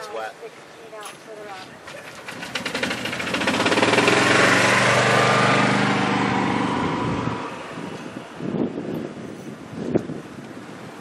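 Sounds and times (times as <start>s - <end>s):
motor engine passing by: 1.9s - 8.2s.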